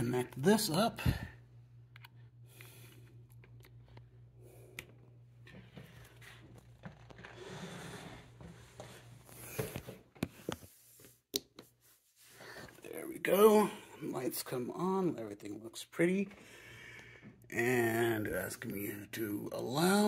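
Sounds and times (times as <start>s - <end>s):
low steady hum: 0.0s - 20.0s
cable rustling: 4.8s - 11.2s.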